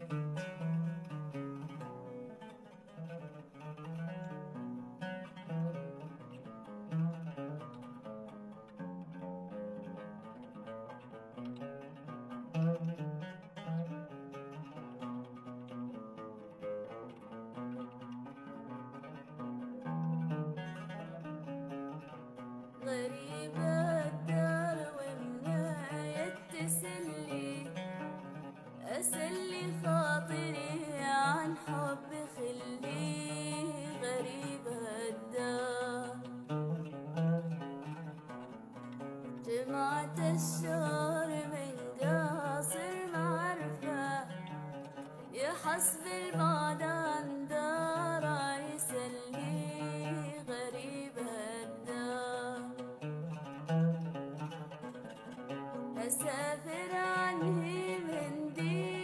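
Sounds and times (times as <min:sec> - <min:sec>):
oud melody of plucked notes: 0:00.0 - 0:59.0
person singing with vibrato: 0:28.9 - 0:36.1, 0:56.0 - 0:59.0.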